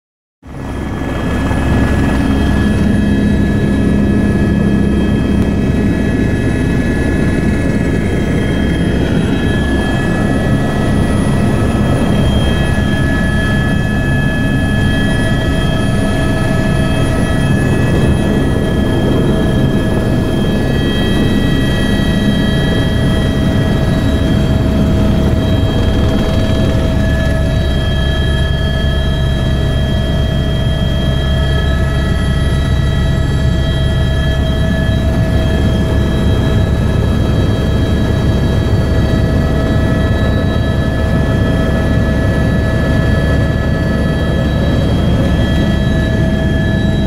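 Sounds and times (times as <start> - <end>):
helicopter engine and rotor: 0.4 - 47.0.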